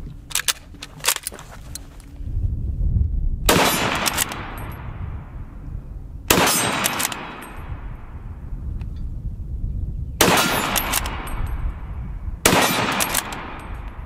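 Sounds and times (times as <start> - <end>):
rifle bolt metallic clicks: 0.1 - 2.0, 3.5 - 4.8, 6.3 - 7.7, 10.2 - 11.8, 12.5 - 14.0
rifle shots echoing: 3.5 - 4.9, 6.3 - 8.2, 10.2 - 14.0.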